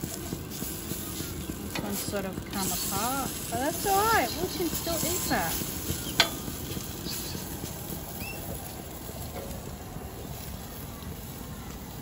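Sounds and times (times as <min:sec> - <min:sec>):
fish sizzling on griddle: 0:00.0 - 0:12.0
bird chirp: 0:06.9 - 0:08.6.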